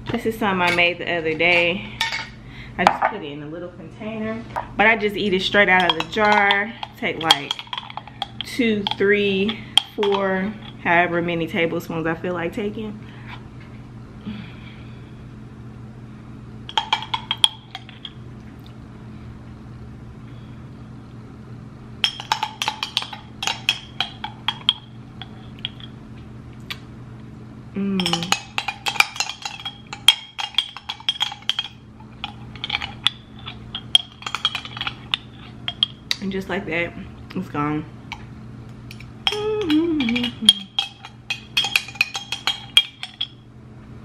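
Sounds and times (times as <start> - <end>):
spoon clinking against jar: 5.8 - 10.4, 16.7 - 18.1, 22.0 - 25.9, 28.0 - 36.1, 39.2 - 43.4
person humming: 27.7 - 28.3, 39.3 - 40.8.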